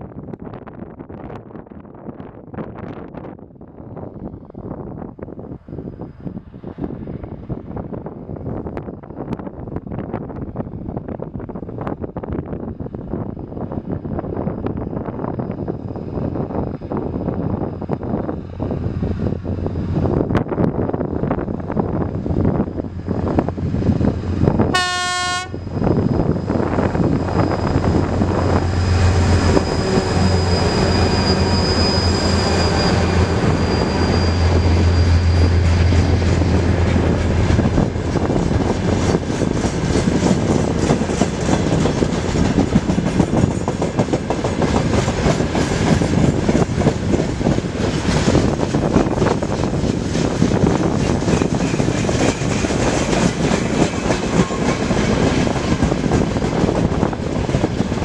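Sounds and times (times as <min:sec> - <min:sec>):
diesel locomotive engines droning: 0:04.1 - 0:58.0
locomotive horn blast: 0:24.7 - 0:25.6.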